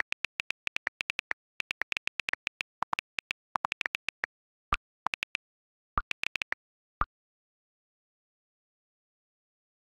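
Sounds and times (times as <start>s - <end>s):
phone keyboard clicks: 0.0s - 4.3s, 5.1s - 5.4s, 6.0s - 6.6s.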